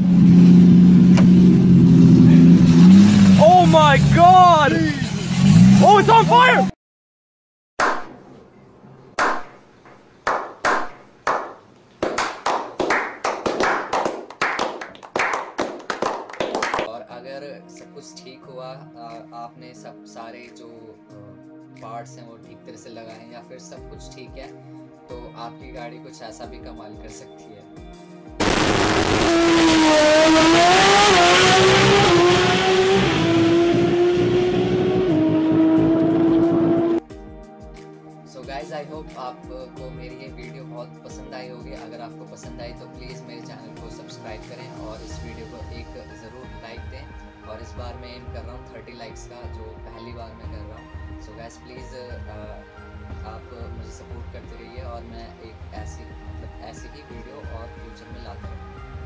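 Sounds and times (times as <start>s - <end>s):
racing car engine at full throttle: 0.0s - 6.7s, 28.4s - 37.0s
people clapping: 9.2s - 9.5s, 10.2s - 16.9s.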